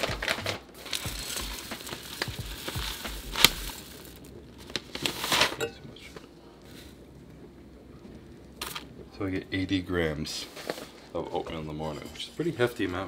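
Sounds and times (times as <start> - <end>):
oats poured into a saucepan: 0.2 - 5.6.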